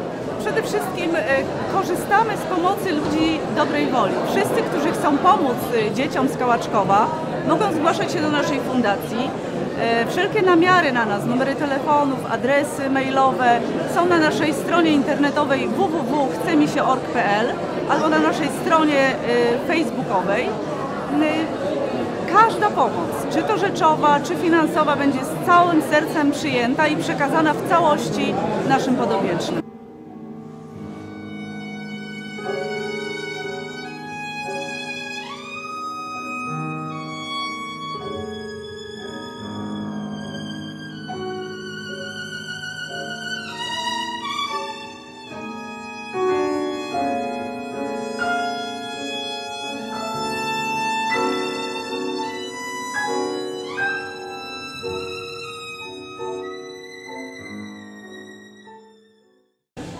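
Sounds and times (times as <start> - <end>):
violin melody with slides: 22.5 - 59.9
sustained piano chords: 29.6 - 59.9.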